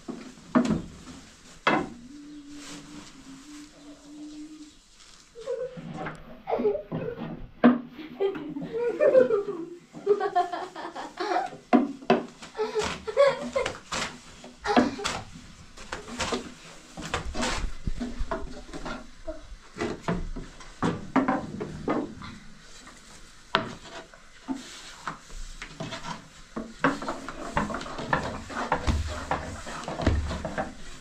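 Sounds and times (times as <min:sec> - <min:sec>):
hard objects knocking and scraping: 0:25.7 - 0:31.0.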